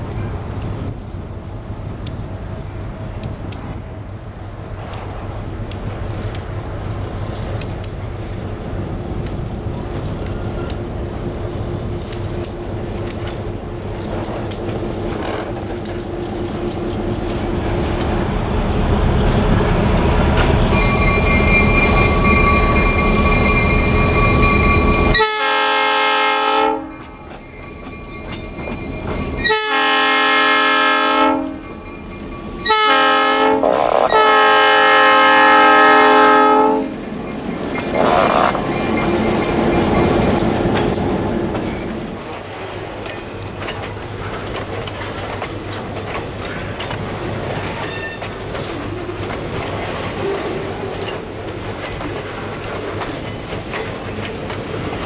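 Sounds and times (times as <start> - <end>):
freight train rumbling: 0.0 - 55.0
train air horn blasts: 25.0 - 27.0, 29.4 - 31.6, 32.6 - 37.0.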